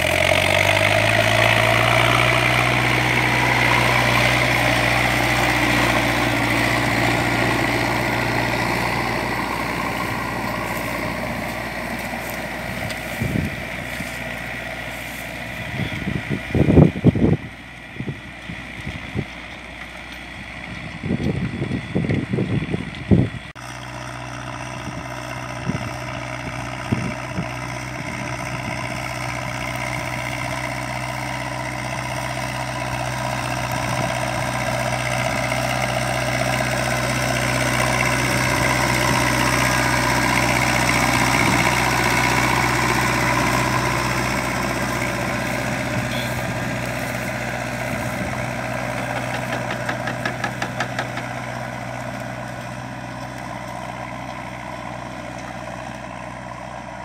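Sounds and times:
tractor diesel engine running: 0.0 - 57.0
wind buffeting microphone: 9.5 - 14.4, 15.4 - 19.4, 20.6 - 23.5, 40.3 - 50.9.

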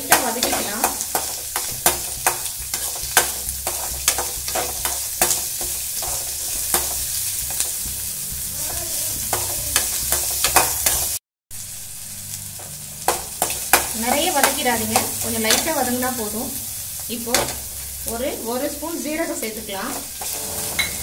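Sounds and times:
food sizzling in oil: 0.0 - 21.0
metal spatula scraping a pan: 0.1 - 11.2, 19.8 - 21.0.

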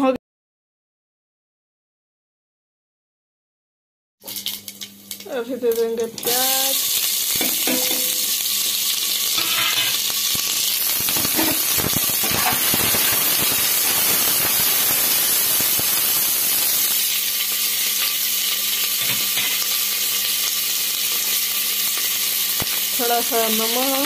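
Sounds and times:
onions sizzling in hot oil: 4.2 - 24.0
metal spatula scraping pot: 9.4 - 10.0.

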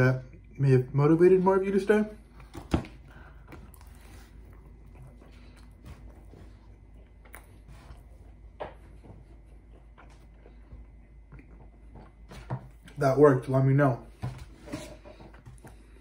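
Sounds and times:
quiet chewing: 2.2 - 13.0, 14.7 - 16.0.

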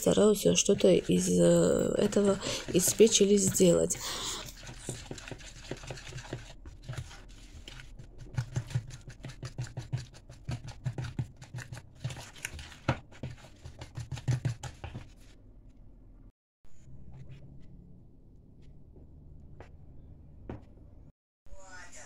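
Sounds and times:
spoon scraping plastic bowl: 0.0 - 15.3.

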